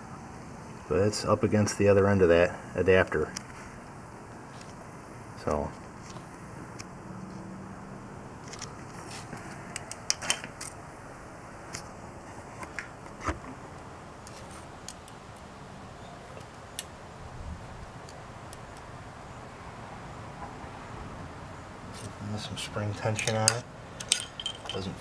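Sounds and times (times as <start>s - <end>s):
faint steady hum: 0.0s - 25.0s
small metallic clicks and taps: 23.1s - 24.9s.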